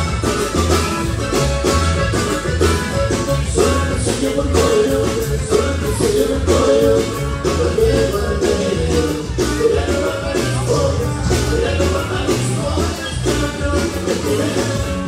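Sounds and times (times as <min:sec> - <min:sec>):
button accordion melody: 0:00.0 - 0:15.0
pulsing bass line: 0:00.0 - 0:15.0
strummed guitar: 0:00.0 - 0:15.0.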